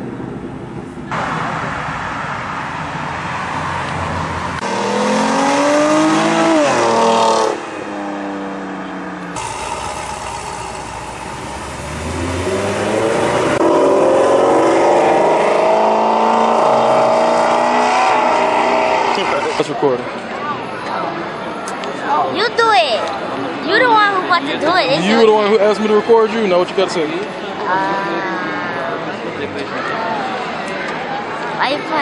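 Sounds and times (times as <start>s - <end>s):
sports car engines accelerating: 1.0s - 20.0s
car engine pulling off: 1.1s - 19.7s.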